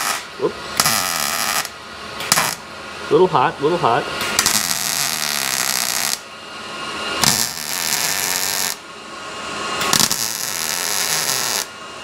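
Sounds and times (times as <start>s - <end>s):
welding arc bursts: 0.0s - 2.6s, 4.4s - 6.3s, 7.2s - 8.8s, 9.8s - 11.7s.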